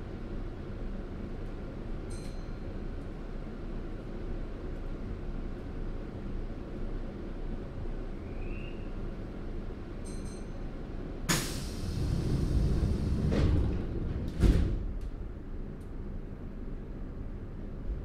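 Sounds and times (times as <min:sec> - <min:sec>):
air hiss of doors: 0:11.3 - 0:13.6.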